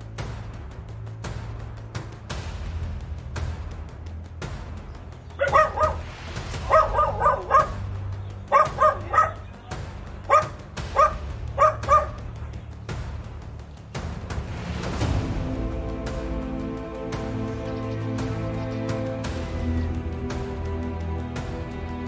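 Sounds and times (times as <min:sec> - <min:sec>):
background music: 0:00.0 - 0:22.0
dog barking: 0:05.4 - 0:07.9, 0:08.5 - 0:09.5, 0:10.2 - 0:12.3.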